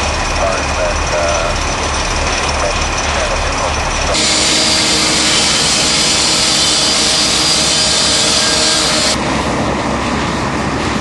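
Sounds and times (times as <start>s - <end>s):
power saw grinding metal: 4.1s - 9.2s.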